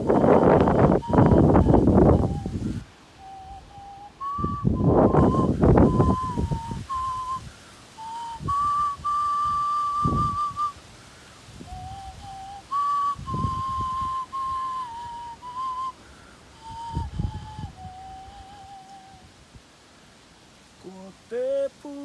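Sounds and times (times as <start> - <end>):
small flute playing slow melody: 0.0 - 10.8, 11.5 - 19.4
breathy puffs into microphone: 7.4 - 8.0.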